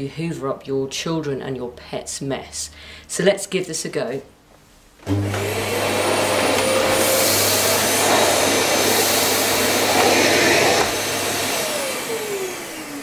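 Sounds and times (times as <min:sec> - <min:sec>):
vacuum cleaner running: 0:05.0 - 0:13.0
vacuum motor winding down: 0:05.0 - 0:13.0.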